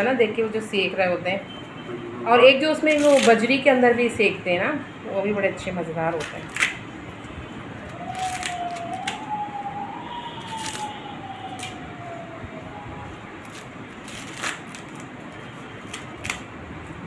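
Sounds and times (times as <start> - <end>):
corn husks tearing by hand: 2.9 - 3.4, 7.9 - 9.2, 10.4 - 11.8, 13.4 - 15.1, 15.8 - 16.5
wailing tone: 7.9 - 13.3.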